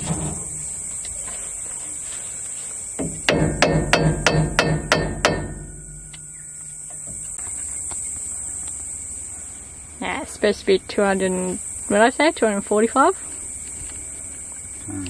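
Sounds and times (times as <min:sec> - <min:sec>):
hammer striking steel: 0:03.0 - 0:07.1.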